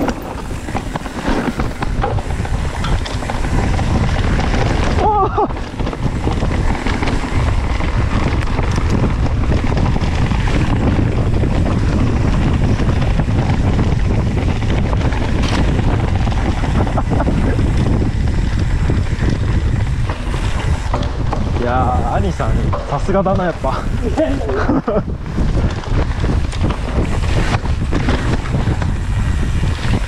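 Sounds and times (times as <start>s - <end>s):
bike knocks: 0.0s - 7.2s, 19.3s - 21.7s
bike tyres rolling on dirt trail: 0.0s - 30.0s
wind buffeting microphone: 0.0s - 30.0s.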